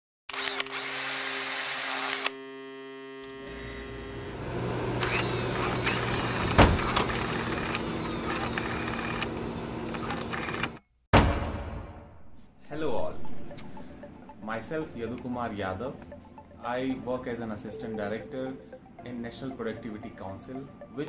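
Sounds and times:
electronic hum with rising whine: 2.3 - 10.7
sharp loud hit: 11.1 - 12.4.

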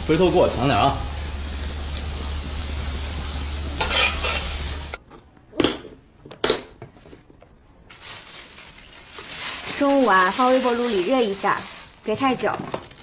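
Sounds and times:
food sizzling in a wok: 0.0 - 5.0, 9.1 - 13.0
metal spatula scraping: 3.8 - 4.6.

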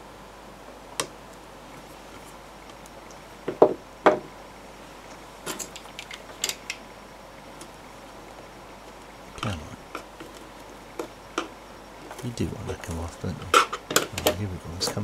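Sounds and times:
solid knocks: 3.5 - 4.3.

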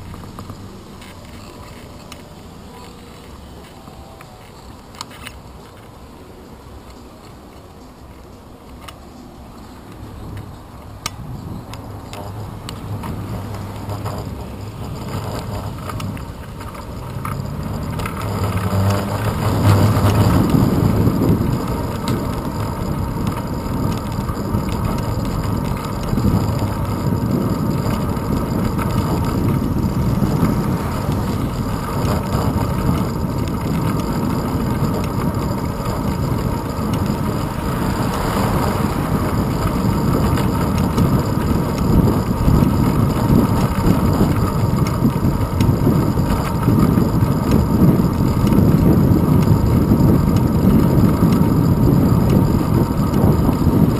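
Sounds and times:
bicycle road rumble: 0.0 - 53.9
wind buffeting microphone: 10.2 - 53.9
car engine pulling away: 11.4 - 53.9.

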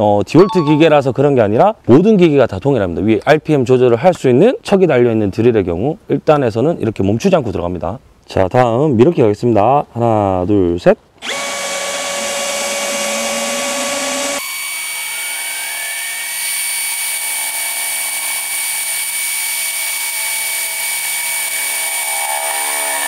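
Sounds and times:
cordless drill boring into steel: 11.2 - 23.0.

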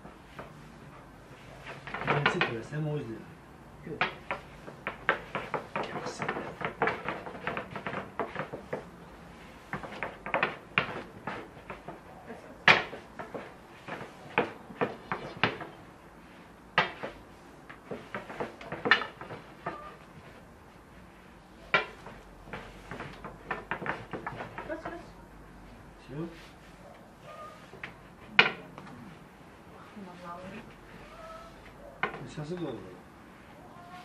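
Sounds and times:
wooden rolling pins clacking: 1.5 - 3.0, 3.8 - 15.9, 16.7 - 20.4, 21.6 - 25.1, 27.8 - 28.8, 31.9 - 32.7.

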